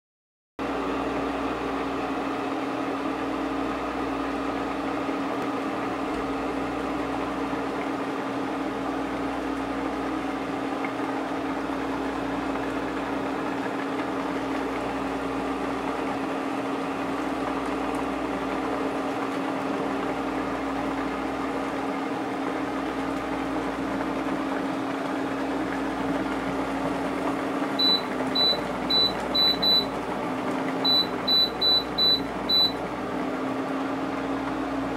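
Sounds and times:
cooktop humming: 0.6 - 34.9
short high beeps: 27.8 - 29.9, 30.9 - 32.8.

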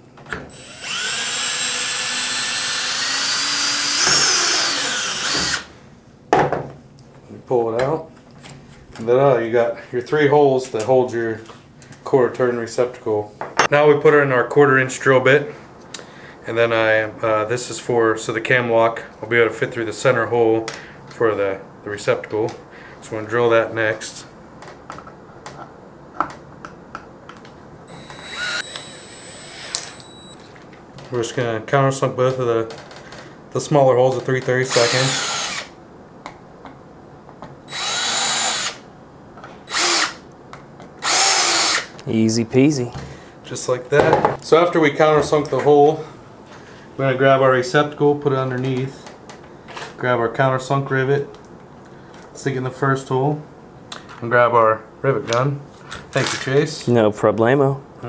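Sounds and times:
cordless drill whining: 0.5 - 5.7, 27.9 - 30.4, 34.7 - 35.7, 37.7 - 38.8, 39.7 - 40.2, 41.0 - 41.9.

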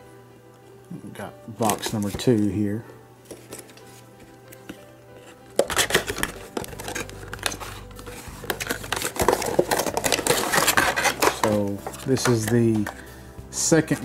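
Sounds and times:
plastic packaging crackling: 1.6 - 2.5, 4.5 - 13.0
cardboard being handled: 3.3 - 13.0.

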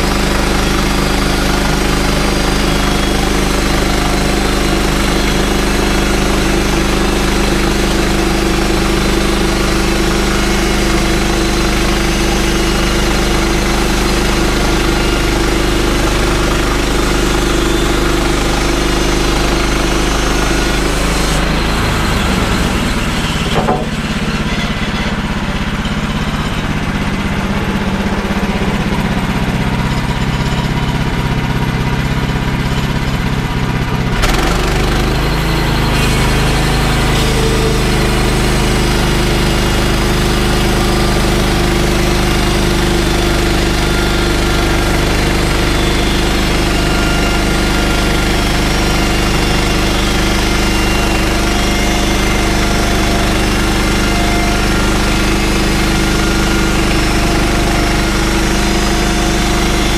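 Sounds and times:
sawmill gas engine running: 0.0 - 59.9
band blade cutting log: 0.1 - 25.2, 34.2 - 59.9
sharp clunk: 23.2 - 25.0.

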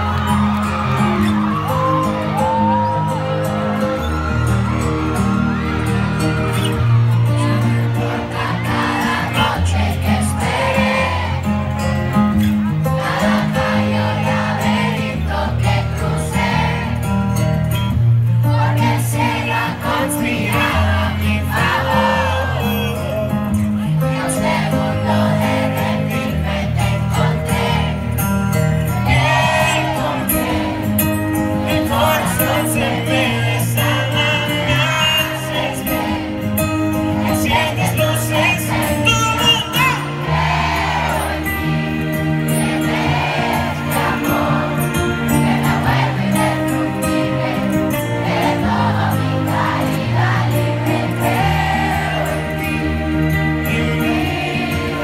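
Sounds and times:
acoustic guitar: 0.0 - 55.0
crowd singing along: 0.0 - 55.0
man singing: 19.0 - 23.6, 31.6 - 36.2, 37.2 - 40.3, 53.3 - 55.0.

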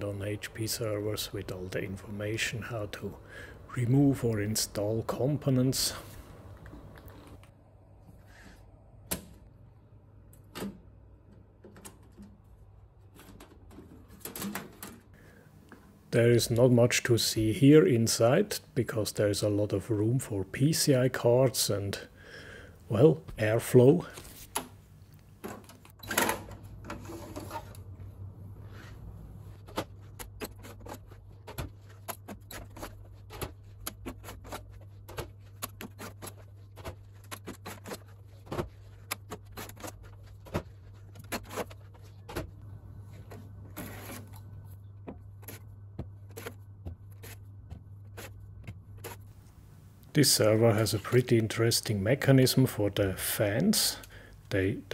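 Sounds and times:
steady low hum: 0.0 - 54.9
sliding metal scrapes: 26.9 - 27.9, 43.0 - 44.8.

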